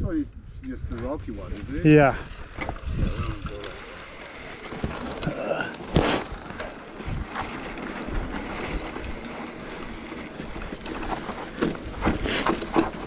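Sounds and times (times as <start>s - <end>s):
wind buffeting microphone: 0.0s - 4.5s, 6.2s - 13.0s
bike rattles and clicks: 0.5s - 13.0s
tyre rumble on dirt: 4.2s - 13.0s.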